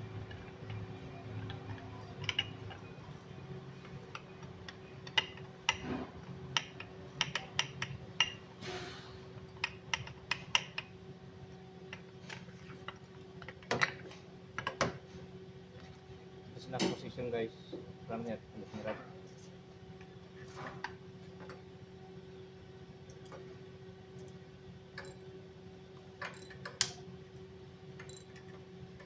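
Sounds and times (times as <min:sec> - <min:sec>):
metal parts clicking and clinking: 0:01.4 - 0:02.9.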